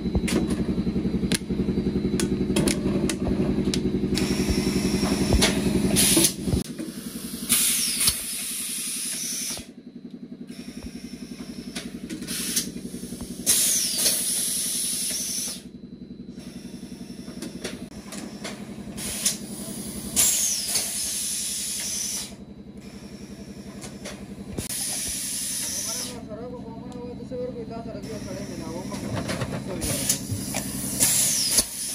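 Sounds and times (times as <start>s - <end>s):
steady machine hum: 0.0s - 31.9s
compressed air hissing: 4.1s - 9.7s, 10.5s - 15.7s, 19.0s - 22.4s, 24.6s - 26.2s, 29.8s - 31.9s.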